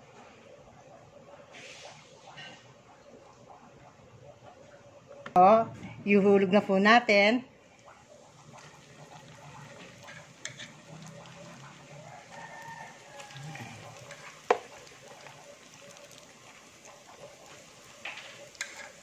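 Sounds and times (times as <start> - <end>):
slices sizzling in frying oil: 7.7 - 19.0.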